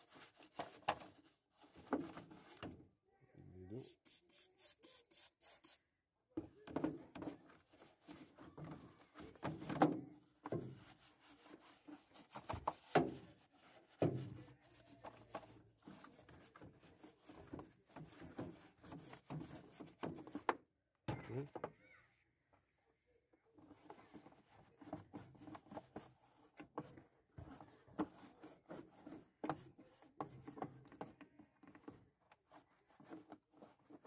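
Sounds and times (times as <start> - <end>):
brush scrubbing plastic: 0.0 - 2.8, 3.8 - 5.8, 7.3 - 20.5, 23.6 - 34.0
spray bottle squirts: 3.8 - 5.8.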